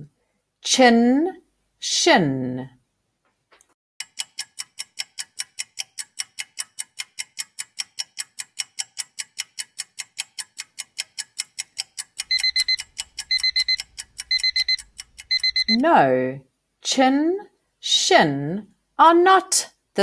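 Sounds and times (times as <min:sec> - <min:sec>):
clock ticking: 0:04.0 - 0:15.8
alarm clock beeping: 0:12.2 - 0:15.8.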